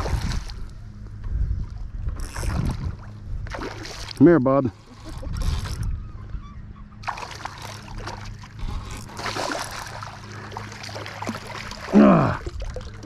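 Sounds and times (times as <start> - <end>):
water sloshing: 1.7 - 5.9, 7.0 - 13.0
fish thrashing and splashing: 7.0 - 13.0.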